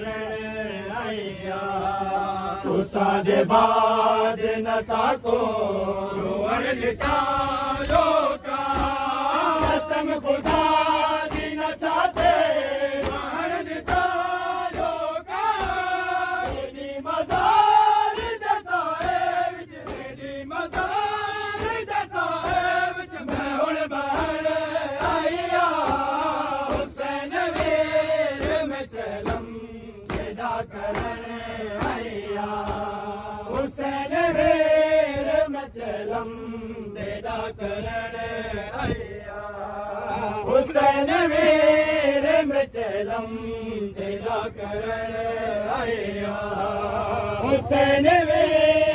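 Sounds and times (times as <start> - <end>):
men chanting together: 0.0 - 48.9
hands slapping chests: 7.9 - 29.5, 30.1 - 34.7.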